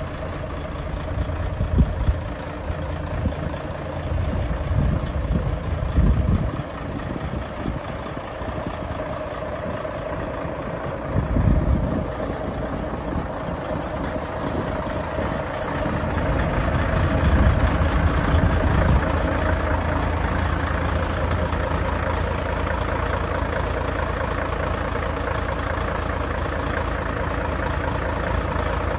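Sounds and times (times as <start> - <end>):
diesel truck engine idling: 0.0 - 28.9
low rumbling gusts: 0.5 - 22.1.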